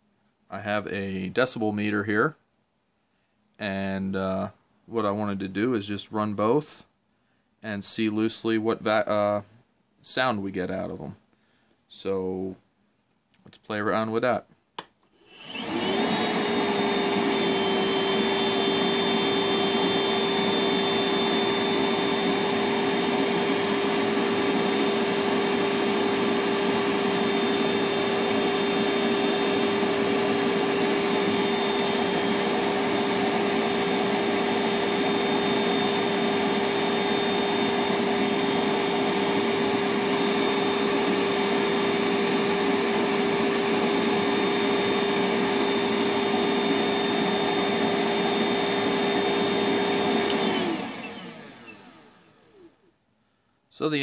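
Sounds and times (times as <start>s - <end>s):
shop vacuum running: 15.2s - 52.9s.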